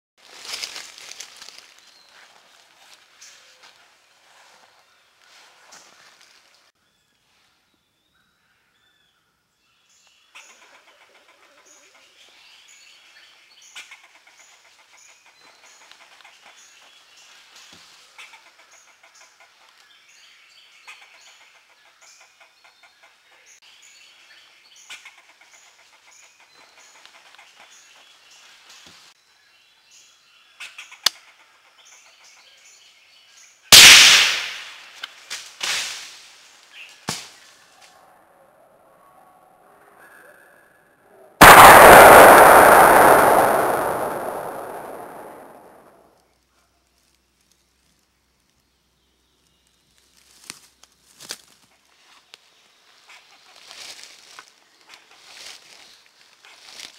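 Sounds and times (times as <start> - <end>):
rifle shot: 33.8 - 34.9, 41.4 - 45.9
soft burst of noise: 41.4 - 46.0.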